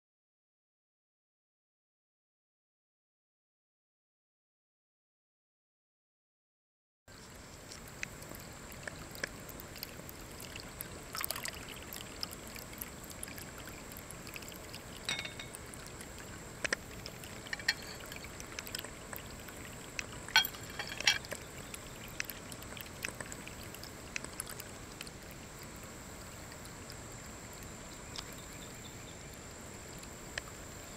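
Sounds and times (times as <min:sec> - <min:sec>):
water trickling into bowl: 0:07.2 - 0:30.9.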